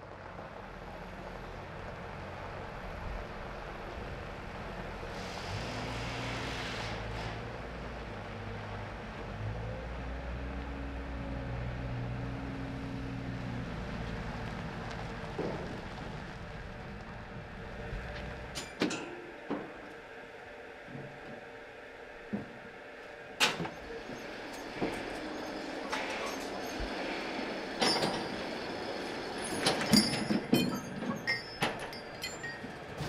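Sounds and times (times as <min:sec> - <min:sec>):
truck diesel engine running: 0:00.0 - 0:18.6.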